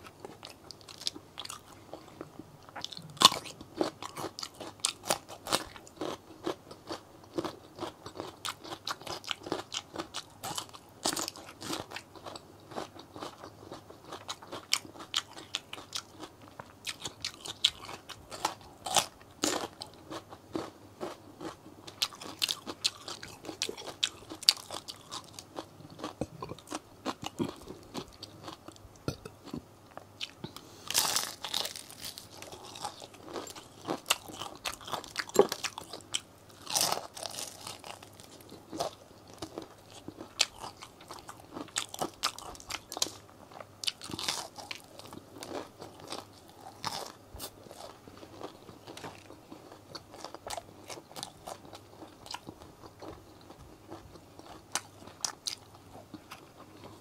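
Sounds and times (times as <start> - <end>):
crunching bites of crispy food: 14.1 - 29.6, 30.2 - 43.2, 43.8 - 55.6.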